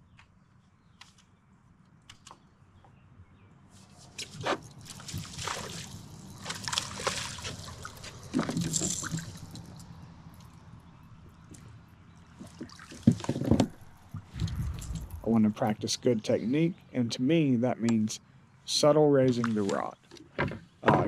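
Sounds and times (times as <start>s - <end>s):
water sloshing against kayak: 4.2s - 9.8s.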